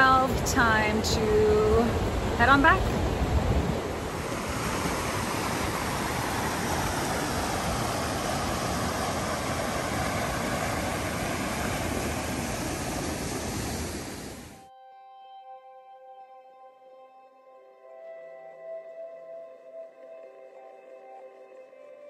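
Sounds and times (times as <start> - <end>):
waterfall rushing over rock: 3.3 - 14.6.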